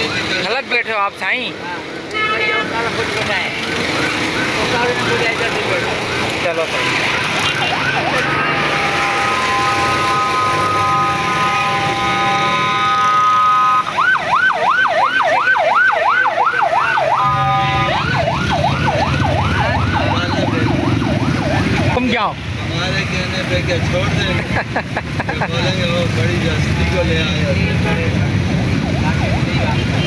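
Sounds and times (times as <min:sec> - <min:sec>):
electronic siren warbling: 0:06.8 - 0:22.2.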